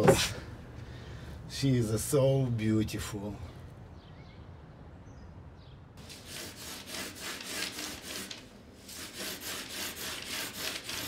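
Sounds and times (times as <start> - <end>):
hand saw cutting wood: 6.0 - 11.0.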